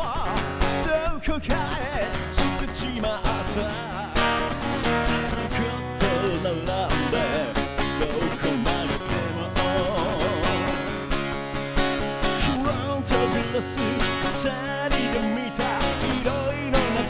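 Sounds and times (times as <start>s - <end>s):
man singing: 0.0s - 11.0s, 12.2s - 17.0s
bass line: 0.0s - 17.0s
strummed guitar: 0.0s - 17.0s.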